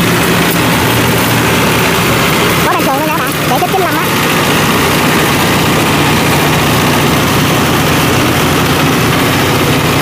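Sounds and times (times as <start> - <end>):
harvester engine running: 0.0 - 10.0.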